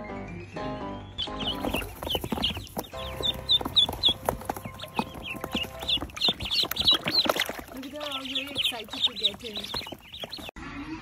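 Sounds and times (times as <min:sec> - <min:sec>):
ducklings peeping: 0:00.0 - 0:11.0.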